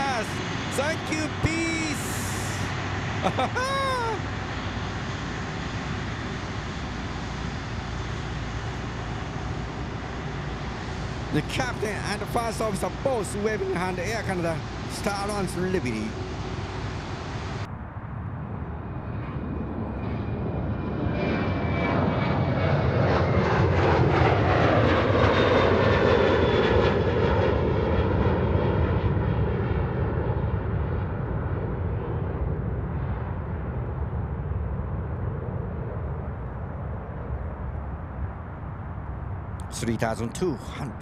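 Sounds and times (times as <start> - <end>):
jet fan whine: 0.0 - 18.4
jet airliner roar: 0.0 - 41.0.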